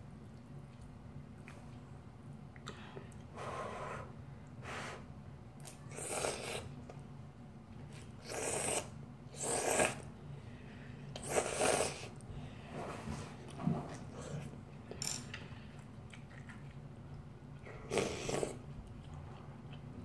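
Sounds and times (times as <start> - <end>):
faint low hum: 0.0 - 20.0
person slurping noodles: 5.9 - 6.7, 8.2 - 10.0, 11.2 - 12.1, 17.8 - 18.6.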